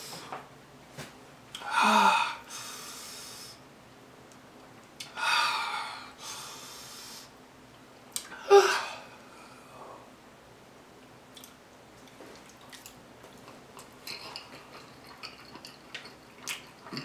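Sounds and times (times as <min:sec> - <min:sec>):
person breathing hard and gasping: 0:01.6 - 0:03.6, 0:05.1 - 0:07.3, 0:08.3 - 0:10.1.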